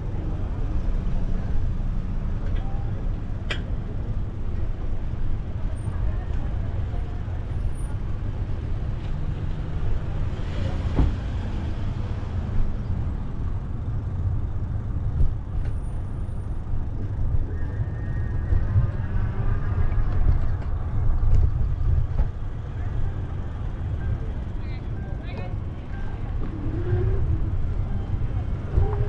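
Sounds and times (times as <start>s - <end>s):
road traffic noise: 0.0s - 29.0s.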